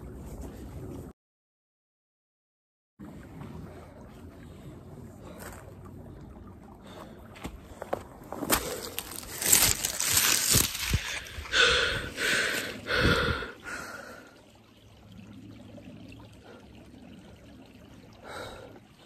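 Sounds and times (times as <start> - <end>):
person breathing hard: 10.5 - 14.4, 18.2 - 18.8.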